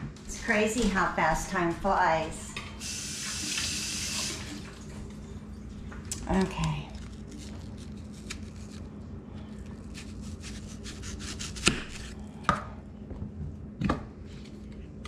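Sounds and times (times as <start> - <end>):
knife cutting onion: 9.8 - 12.6.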